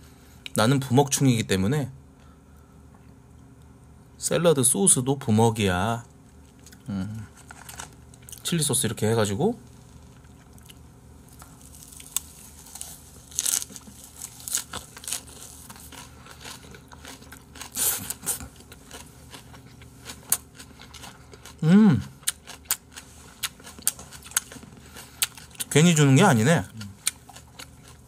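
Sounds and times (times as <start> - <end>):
person humming: 6.9 - 7.3, 21.6 - 22.1
close chewing crunches: 9.8 - 28.0.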